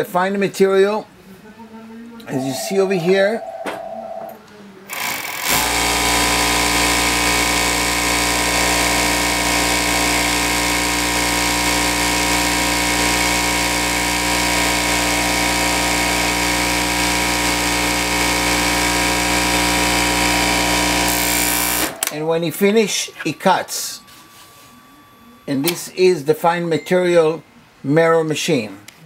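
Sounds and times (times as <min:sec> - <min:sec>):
overlock sewing machine running: 0:04.9 - 0:22.0.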